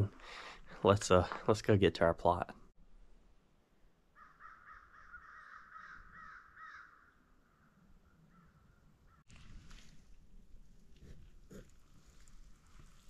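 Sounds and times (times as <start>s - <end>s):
crow cawing faintly: 4.1s - 9.2s.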